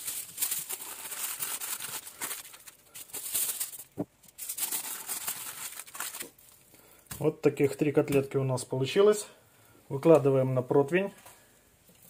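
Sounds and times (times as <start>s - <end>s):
aluminium foil crinkling: 0.0s - 6.7s.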